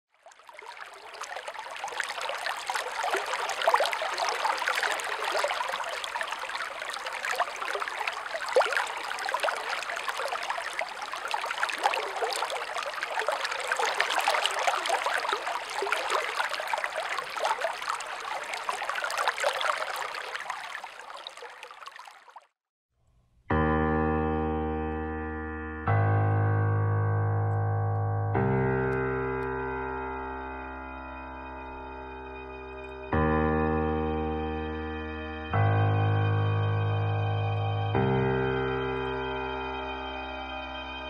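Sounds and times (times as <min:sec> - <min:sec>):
stream water babbling: 0:00.2 - 0:22.5.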